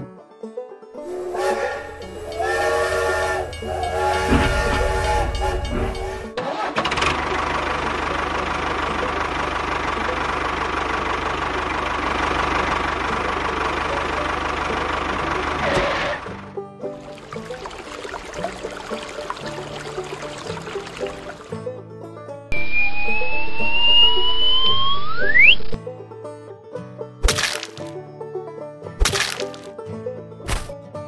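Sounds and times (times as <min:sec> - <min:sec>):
steam engine hissing and rumbling: 0:01.0 - 0:06.4
steam locomotive whistle: 0:01.0 - 0:06.4, 0:22.5 - 0:25.8.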